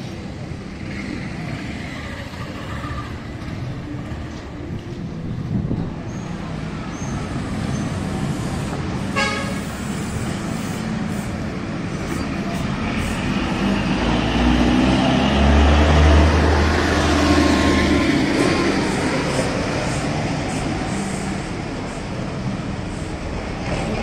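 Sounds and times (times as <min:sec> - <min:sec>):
road traffic: 0:00.0 - 0:24.0
car horn toot: 0:09.2 - 0:09.6
vehicle passing close: 0:12.7 - 0:21.8.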